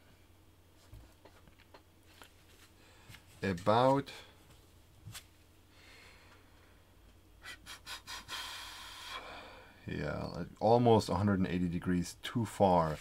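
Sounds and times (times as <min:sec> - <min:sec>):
faint handling noises: 0:00.7 - 0:05.4
breathy hiss: 0:07.4 - 0:09.8.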